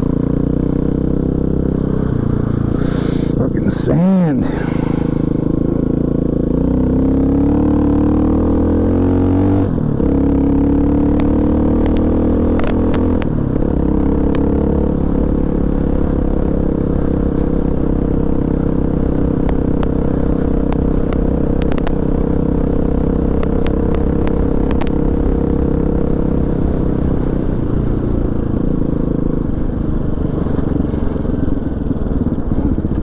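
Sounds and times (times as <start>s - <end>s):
motorcycle engine cruising: 0.0s - 33.0s
sharp ticks: 11.2s - 13.4s, 23.3s - 26.0s.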